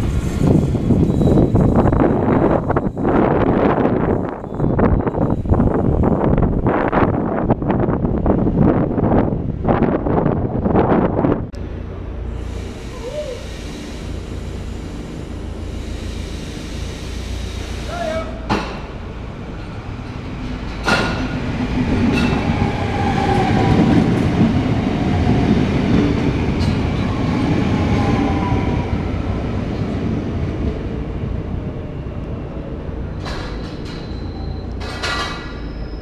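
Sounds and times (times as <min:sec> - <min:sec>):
train wheels rumbling on rails: 0:00.0 - 0:36.0
sharp clicks from train wheels: 0:12.4 - 0:24.6, 0:33.1 - 0:35.8.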